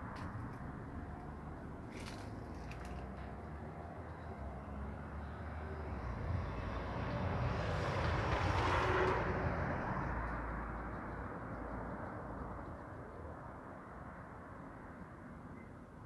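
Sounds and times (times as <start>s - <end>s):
vehicle passing by: 0.7s - 12.2s.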